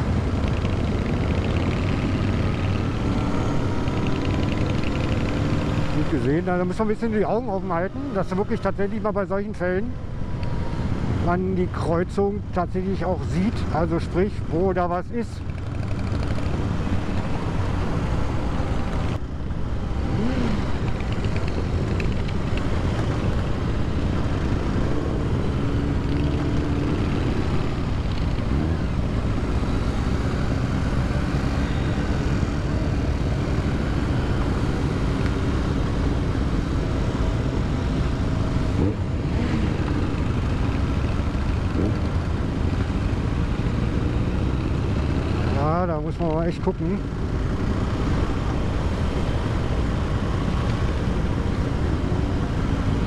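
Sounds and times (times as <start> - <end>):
motorcycle engine running: 0.0 - 6.2
wind and road noise: 0.0 - 53.0.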